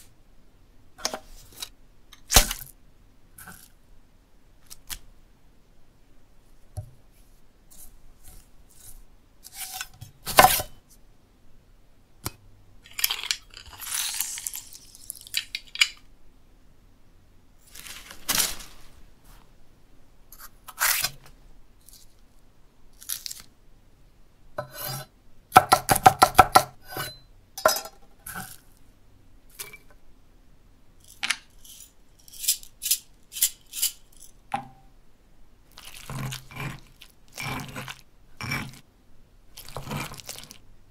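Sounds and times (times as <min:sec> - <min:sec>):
chopping on wooden board: 0:25.6 - 0:26.8.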